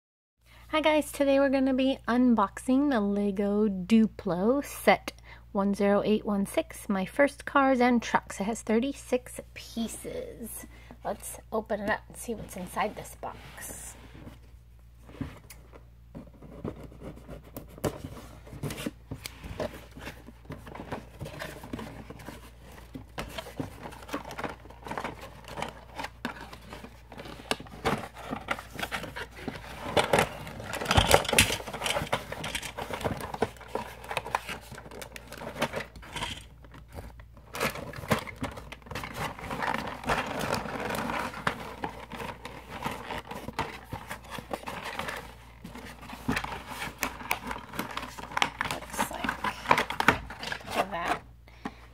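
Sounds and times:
cardboard scraping and crinkling: 0:16.1 - 0:51.2.

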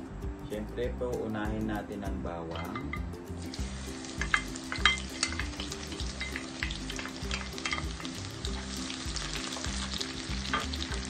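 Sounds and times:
garlic sizzling in oil: 0:03.3 - 0:11.0.

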